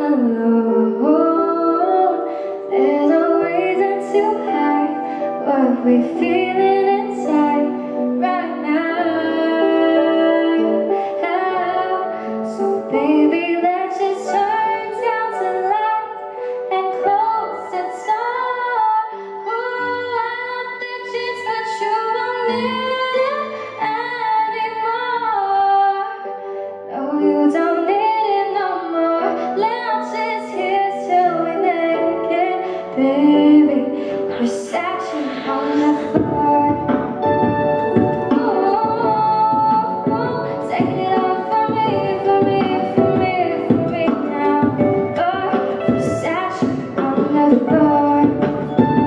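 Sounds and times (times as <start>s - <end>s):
keyboard chords: 0.0s - 49.0s
woman singing into a microphone: 0.0s - 49.0s
beatboxed percussion: 34.0s - 49.0s.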